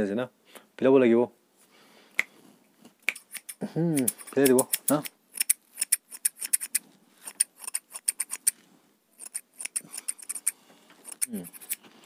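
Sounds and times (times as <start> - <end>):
scissors snipping hair: 3.0 - 8.6, 9.2 - 11.8.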